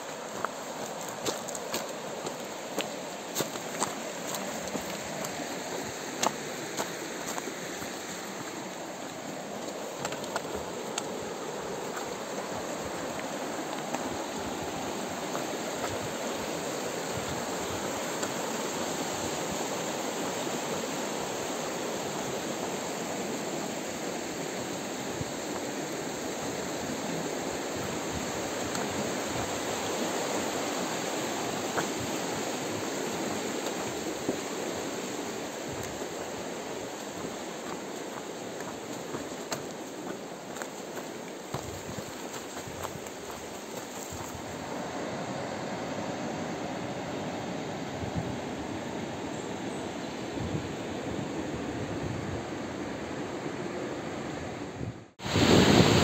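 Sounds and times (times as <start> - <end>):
footsteps on wooden boards: 0.0 - 14.2, 36.9 - 44.5
fast-flowing river rushing: 0.0 - 49.2.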